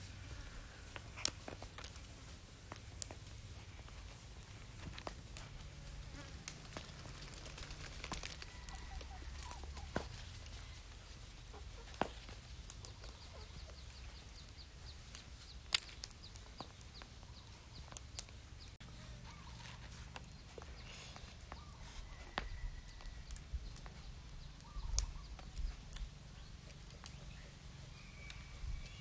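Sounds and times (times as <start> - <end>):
egg shells cracking: 6.3 - 10.5.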